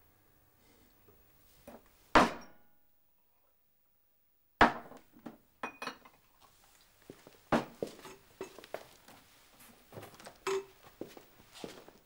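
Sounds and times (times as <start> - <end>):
sharp knock: 2.2 - 2.6.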